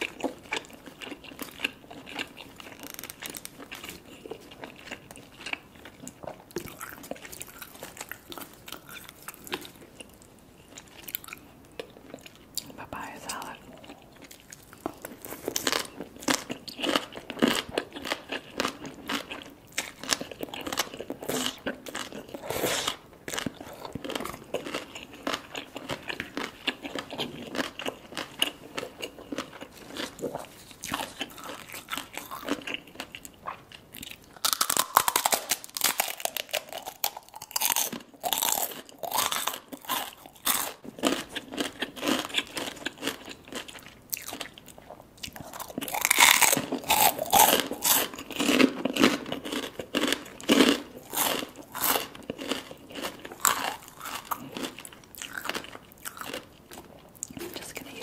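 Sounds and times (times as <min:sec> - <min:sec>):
crisp crunching bites: 0:00.0 - 0:05.6, 0:34.0 - 0:44.6, 0:45.3 - 0:56.5
chewing food: 0:00.0 - 0:58.0.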